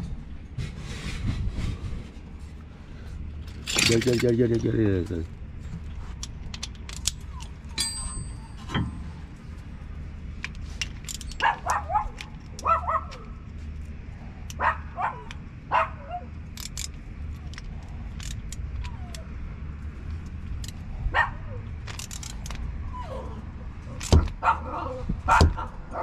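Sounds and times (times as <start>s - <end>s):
socket ratchet clicking: 6.2s - 8.0s, 16.4s - 19.3s, 21.8s - 22.7s
dog barking: 11.4s - 13.2s, 14.6s - 16.3s, 21.1s - 21.6s, 24.4s - 26.0s.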